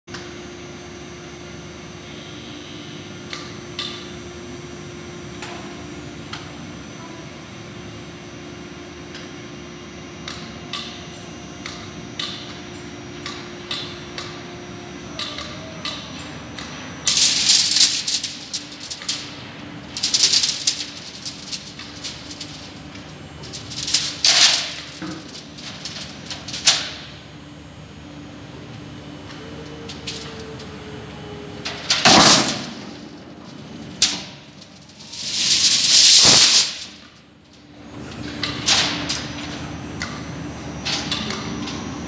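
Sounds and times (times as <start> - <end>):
machinery hum: 0.1 - 42.0
sharp clicks and rattles: 17.1 - 27.1, 29.9 - 30.7.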